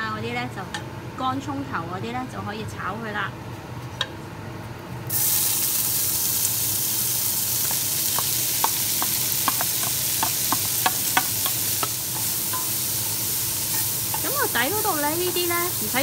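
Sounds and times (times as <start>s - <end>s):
onions sizzling in hot fat: 5.1s - 16.0s.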